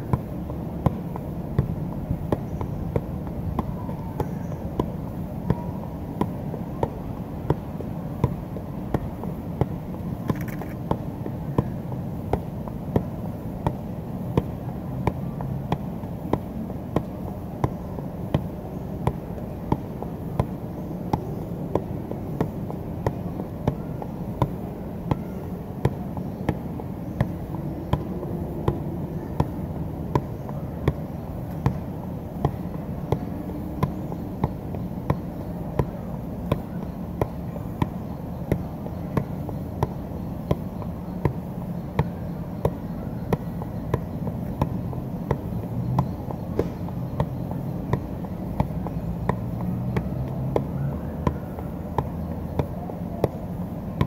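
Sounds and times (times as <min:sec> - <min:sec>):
soccer ball thuds: 0:00.0 - 0:53.4
low background noise: 0:00.0 - 0:54.0.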